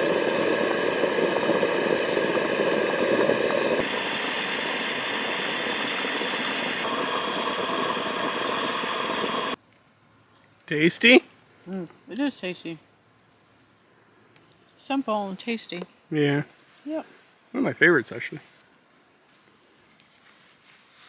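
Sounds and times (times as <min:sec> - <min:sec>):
gas stove burner hissing: 0:00.0 - 0:09.6.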